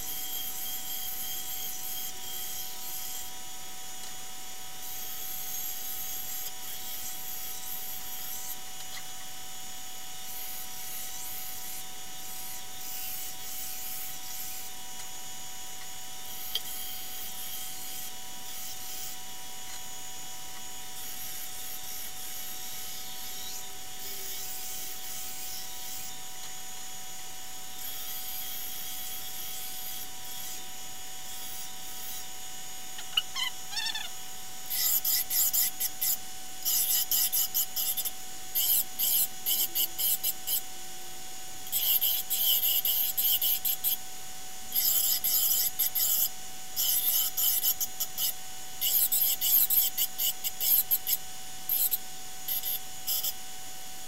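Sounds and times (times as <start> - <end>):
metal grinding on belt: 34.7 - 40.5.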